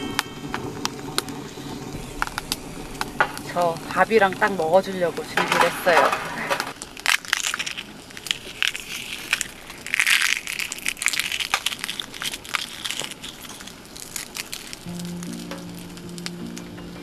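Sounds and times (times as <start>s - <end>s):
dried peppers crackling: 0.0s - 17.0s
background music: 14.9s - 17.0s.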